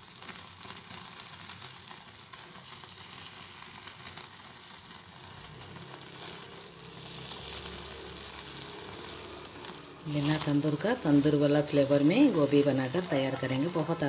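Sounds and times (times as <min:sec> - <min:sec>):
skewers sizzling over gas flame: 0:00.0 - 0:14.0.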